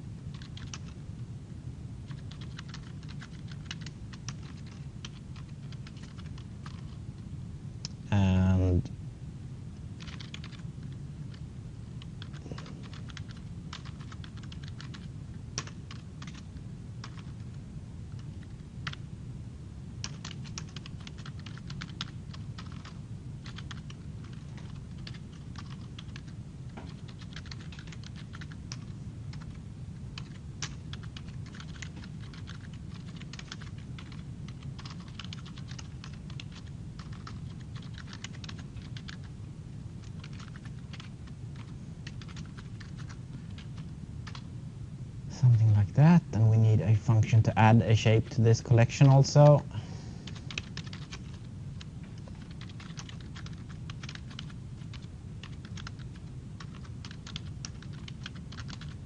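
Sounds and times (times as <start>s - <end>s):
steady low hum: 0.0s - 59.0s
computer keyboard typing: 0.3s - 1.0s, 2.1s - 7.0s, 10.0s - 11.4s, 12.0s - 19.0s, 20.0s - 29.6s, 30.2s - 39.3s, 40.0s - 44.5s, 50.3s - 59.0s.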